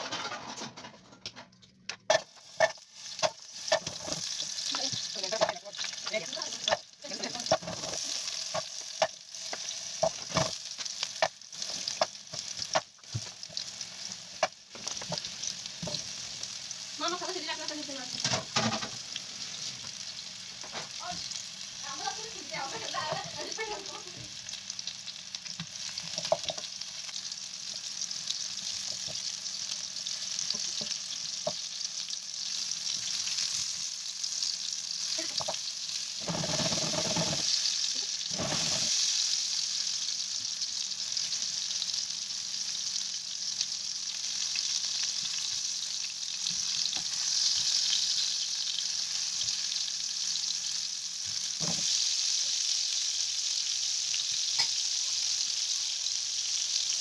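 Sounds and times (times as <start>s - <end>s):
meatballs sizzling in oil: 2.0s - 57.0s
meatballs clattering in pan: 35.3s - 37.6s.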